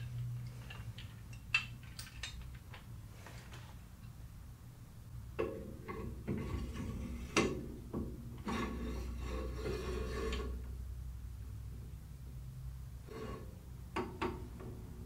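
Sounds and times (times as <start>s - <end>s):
metal clicks and knocks: 0.0s - 3.0s
metal scraping along rail: 5.4s - 7.7s, 8.3s - 10.8s, 13.0s - 13.8s.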